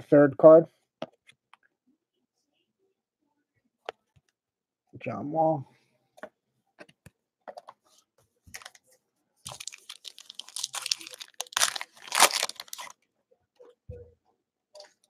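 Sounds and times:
foil wrapper crinkling and tearing: 9.5s - 12.9s.

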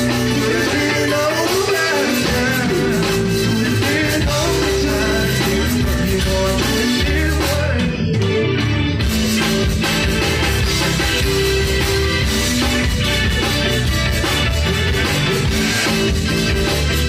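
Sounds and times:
person singing: 0.0s - 8.3s
live band playing dance music: 0.0s - 17.0s.

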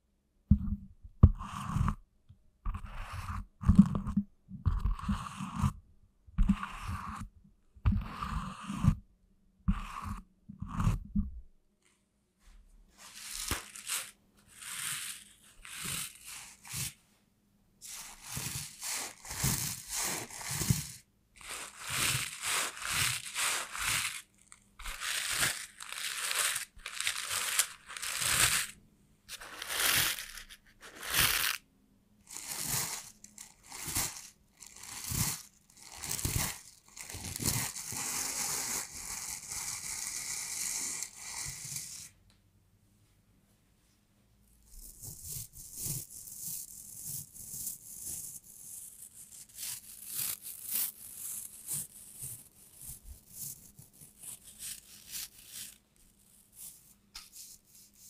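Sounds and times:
leather gloves rubbing and creaking: 13.0s - 17.0s, 17.8s - 31.6s, 32.2s - 42.1s.

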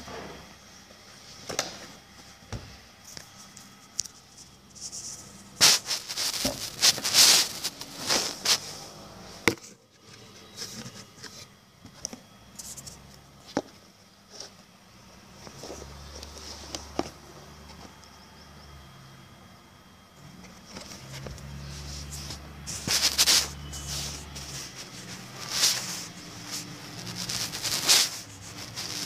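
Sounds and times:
puzzle pieces rubbing: 4.7s - 8.7s, 20.7s - 29.0s.

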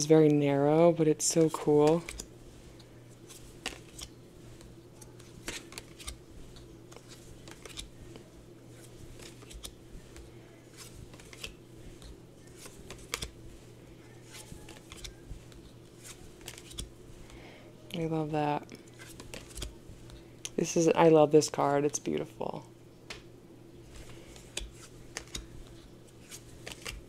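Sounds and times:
faint steady hum: 0.0s - 27.0s
cards flipping and sliding: 1.4s - 13.4s, 14.2s - 16.9s, 18.9s - 20.2s, 23.9s - 27.0s.

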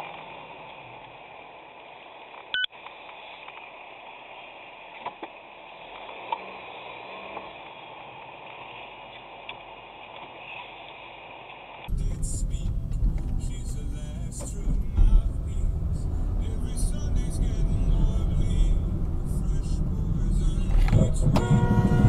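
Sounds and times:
road and cabin noise: 11.6s - 22.0s.

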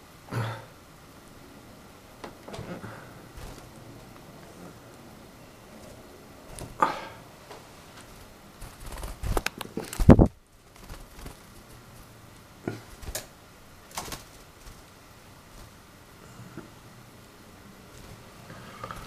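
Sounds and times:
bird hopping and fluttering: 2.2s - 5.0s, 5.6s - 16.8s, 17.8s - 19.0s.

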